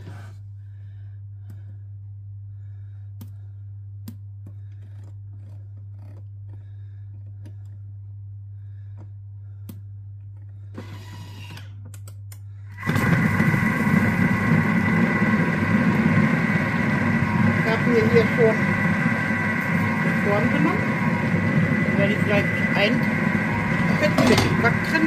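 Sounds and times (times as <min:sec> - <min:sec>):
low steady hum: 0:00.0 - 0:25.0
food processor motor whirring: 0:10.8 - 0:11.7, 0:12.8 - 0:25.0.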